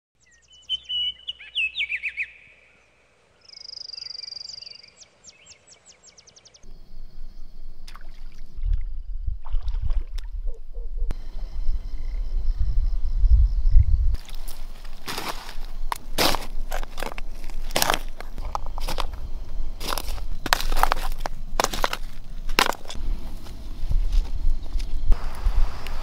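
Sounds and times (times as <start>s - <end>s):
birds chirping and trilling: 0.2s - 9.1s
splashes wading in water: 7.8s - 10.6s
low rumble: 8.5s - 14.2s.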